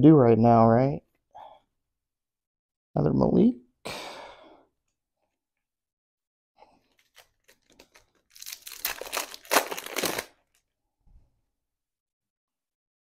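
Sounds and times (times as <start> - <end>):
wrapper tearing and crinkling: 6.9 - 10.6.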